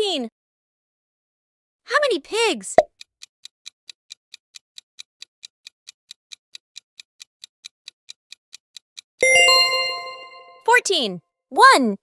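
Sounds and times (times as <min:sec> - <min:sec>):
clock ticking: 0:02.8 - 0:10.2.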